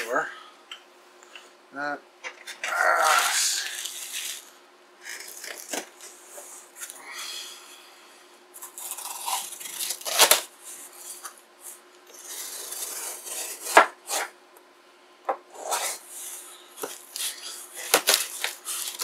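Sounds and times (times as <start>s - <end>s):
cardboard and tape crinkling: 2.8s - 4.5s, 5.1s - 6.1s, 8.6s - 11.4s, 16.8s - 19.0s.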